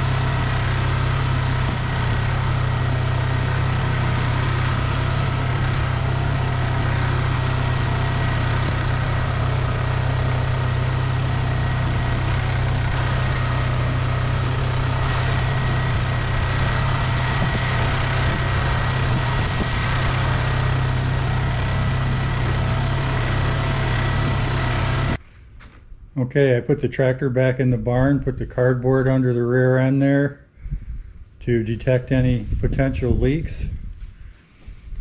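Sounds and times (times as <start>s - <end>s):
tractor diesel engine running: 0.0s - 25.2s.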